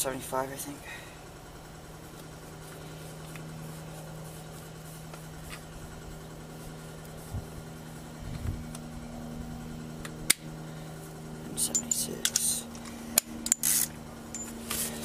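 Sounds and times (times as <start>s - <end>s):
low hum: 0.0s - 15.0s
torque wrench ticking: 11.6s - 14.5s.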